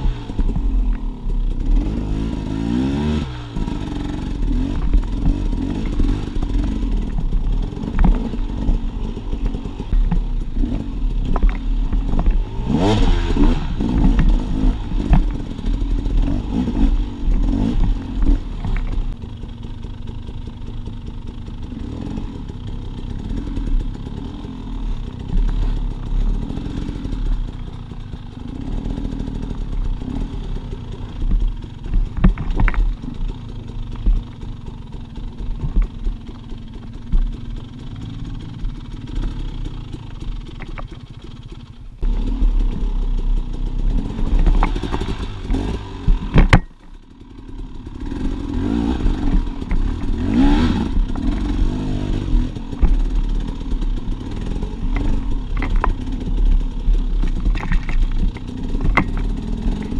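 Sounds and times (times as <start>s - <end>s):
dirt bike engine revving: 0.0s - 59.9s
knocks and clatter on rock: 3.6s - 19.2s, 31.0s - 39.3s, 40.2s - 41.6s, 43.9s - 47.0s, 48.1s - 59.9s.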